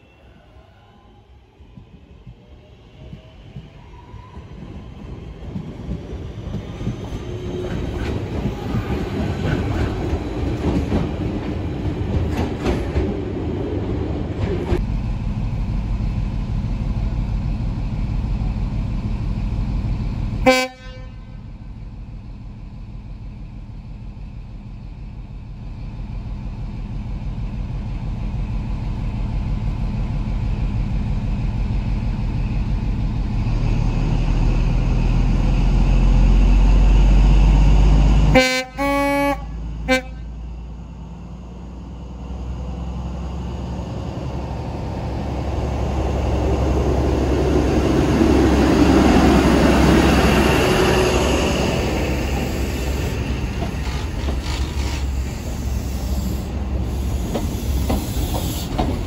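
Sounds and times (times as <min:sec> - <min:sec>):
train diesel engine powering up: 0:00.0 - 0:20.4, 0:21.4 - 0:38.4, 0:39.3 - 0:59.0
train horn toot: 0:20.4 - 0:21.4, 0:38.3 - 0:40.3
two-tone train horn blast: 0:20.4 - 0:21.5, 0:38.3 - 0:40.3.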